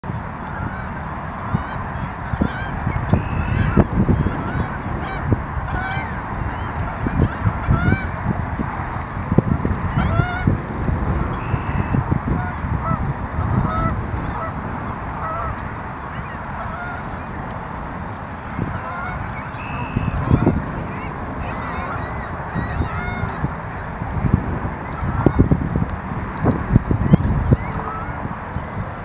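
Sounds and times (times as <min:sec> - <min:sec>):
low rumble of wind and water: 0:00.0 - 0:29.0
bird calls: 0:01.4 - 0:08.1, 0:11.3 - 0:12.8, 0:18.4 - 0:24.0.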